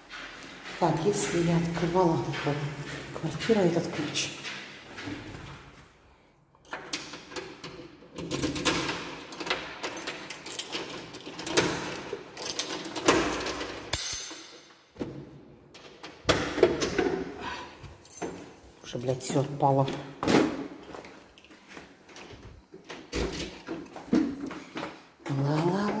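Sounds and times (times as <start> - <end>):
keys rattling: 6.6 - 14.7, 18.0 - 19.4.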